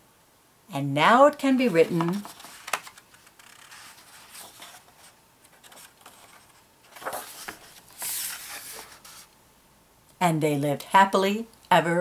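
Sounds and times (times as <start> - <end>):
book page turning: 1.6 - 9.3
hand brushing paper: 3.4 - 9.3.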